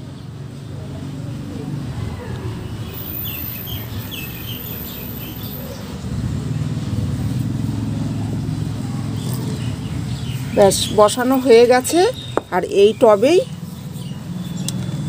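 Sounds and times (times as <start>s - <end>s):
vehicle engine rumble: 0.0s - 15.0s
bird chirps: 2.8s - 6.0s.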